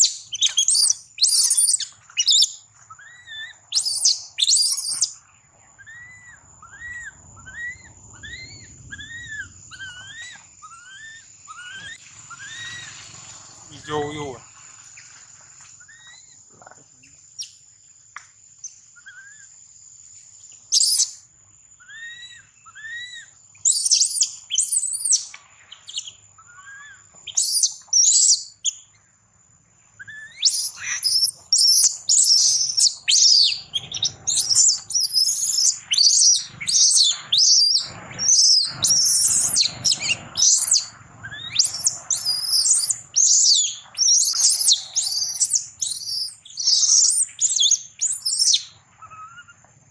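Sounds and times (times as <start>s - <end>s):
baby monkey screaming: 0.0s - 5.1s, 5.8s - 13.1s, 19.0s - 19.5s, 21.8s - 25.3s, 25.9s - 28.5s, 30.0s - 49.6s.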